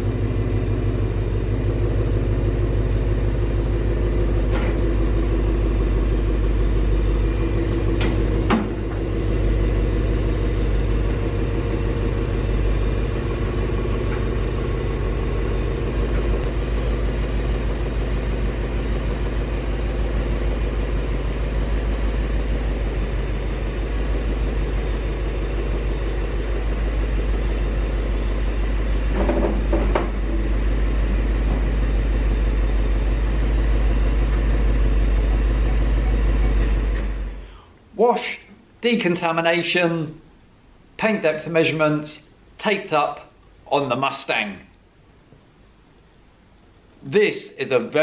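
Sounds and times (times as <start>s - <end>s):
car engine idling: 0.0s - 37.8s.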